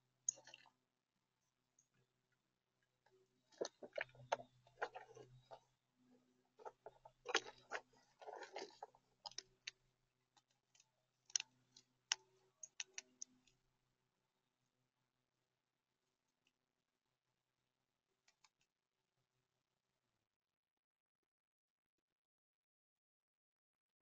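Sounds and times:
acorns clicking together: 0:12.1 - 0:13.4.

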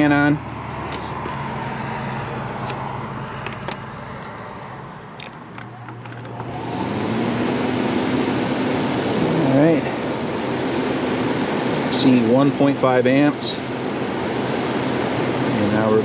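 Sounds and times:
steady low hum: 0:04.0 - 0:16.0
fan motor starting up: 0:05.2 - 0:16.0.

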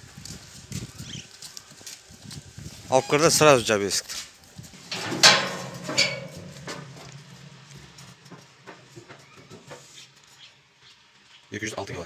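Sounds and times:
hooves knocking on metal: 0:04.7 - 0:10.0
metal pen banging and rattling: 0:04.8 - 0:09.2
ringing metal clang: 0:04.8 - 0:09.5.

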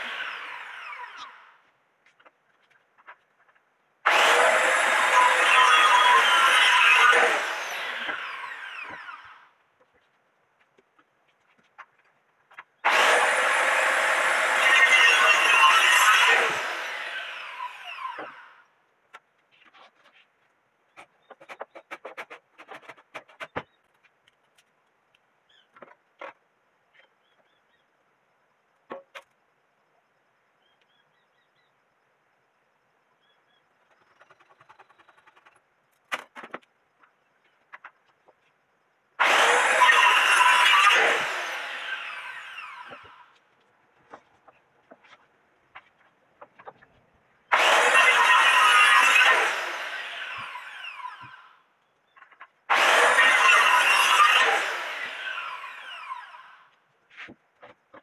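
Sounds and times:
circular saw cutting log: 0:00.0 - 0:01.6, 0:04.0 - 0:09.5, 0:12.7 - 0:18.6, 0:39.2 - 0:43.4, 0:47.5 - 0:51.6, 0:52.7 - 0:56.7
saw blade spinning down whine: 0:04.1 - 0:09.4, 0:12.9 - 0:18.5, 0:47.5 - 0:51.4, 0:52.7 - 0:56.6
small birds chirping: 0:19.1 - 0:22.1, 0:23.3 - 0:26.2, 0:26.8 - 0:28.5, 0:29.8 - 0:35.9, 0:51.2 - 0:52.6.

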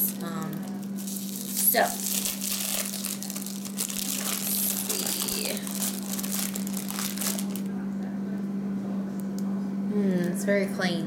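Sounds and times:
plastic packaging crinkling: 0:00.0 - 0:07.7
low electrical hum: 0:00.0 - 0:11.0.

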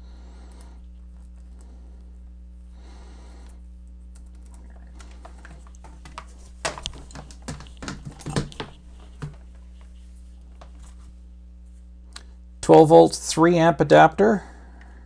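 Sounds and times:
steady low hum: 0:00.0 - 0:15.0
cord rustling: 0:03.9 - 0:11.9.

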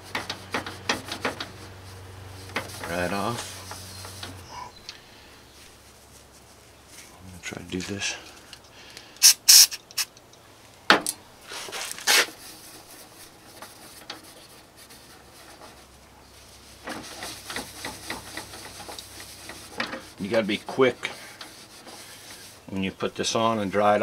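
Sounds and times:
rag rubbing on plastic: 0:00.0 - 0:04.5, 0:11.5 - 0:24.0
aerosol can hissing: 0:09.2 - 0:10.1.

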